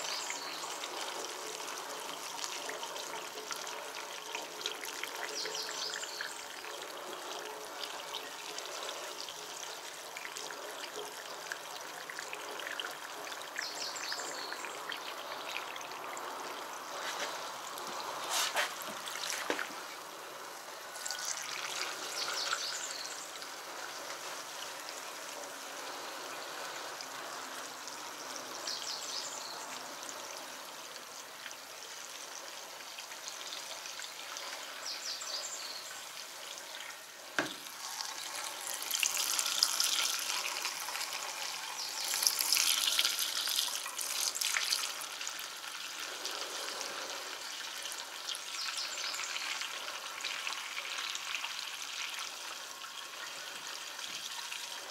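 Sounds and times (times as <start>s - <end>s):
fuel trickling into a tank: 0.0s - 54.9s.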